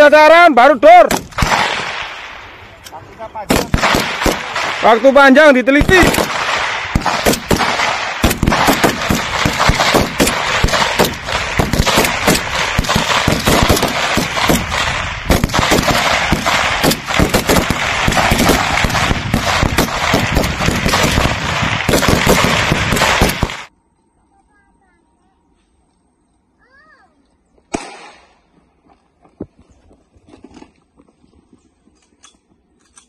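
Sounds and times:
rifle gunshots: 0.9 - 2.6, 3.4 - 23.7, 27.7 - 28.4.

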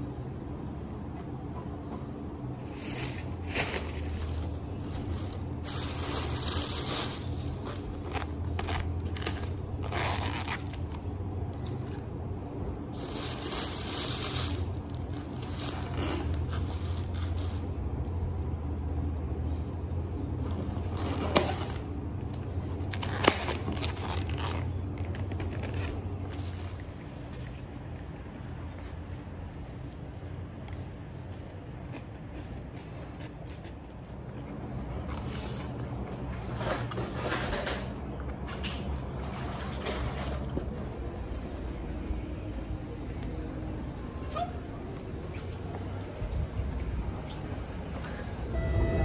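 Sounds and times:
steady low hum: 0.0 - 49.0
plastic bag rustling: 2.6 - 12.1, 12.9 - 17.8, 22.6 - 27.0.

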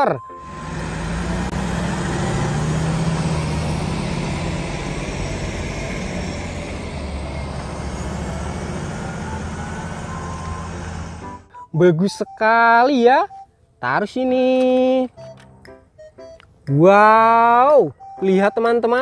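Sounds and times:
diesel machinery droning: 0.0 - 11.5.

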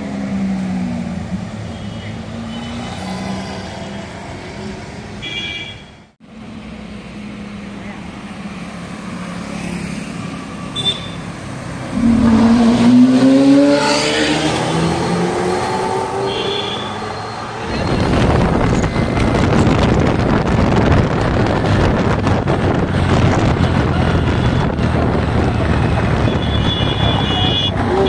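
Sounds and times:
sports car accelerating hard: 11.8 - 16.3.

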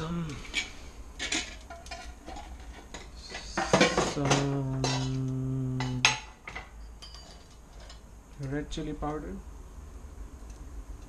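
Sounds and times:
steel kitchenware clinking: 0.4 - 8.0
metallic ringing: 5.8 - 8.0.

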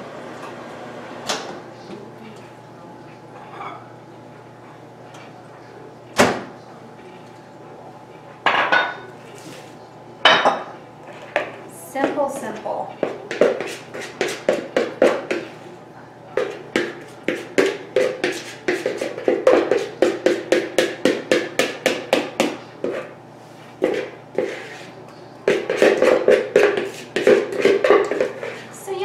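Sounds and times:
spoon scraping mixing bowl: 11.0 - 15.6, 16.4 - 20.6, 22.3 - 28.8.

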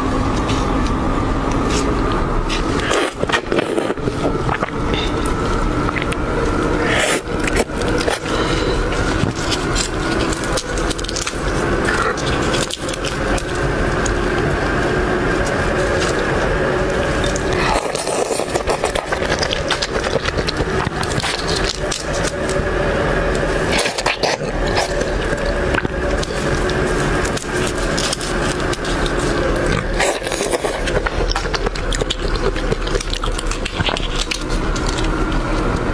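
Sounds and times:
chewing: 0.0 - 35.9
shrimp being peeled and torn: 0.0 - 35.9
steady hum: 0.0 - 35.9.

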